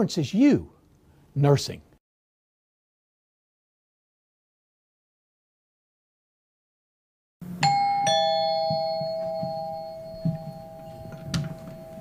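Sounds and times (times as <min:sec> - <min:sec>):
two-tone doorbell chime: 0:07.6 - 0:12.0
soft thumps: 0:08.3 - 0:12.0.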